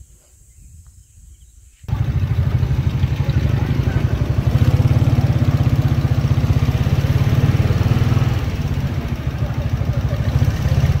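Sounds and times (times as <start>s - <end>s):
motorcycle engine running: 1.9s - 11.0s.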